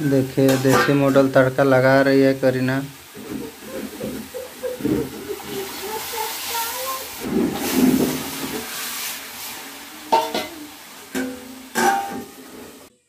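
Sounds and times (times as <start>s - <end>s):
hot oil sizzling: 0.0s - 13.0s
steel utensils clinking: 10.1s - 12.3s.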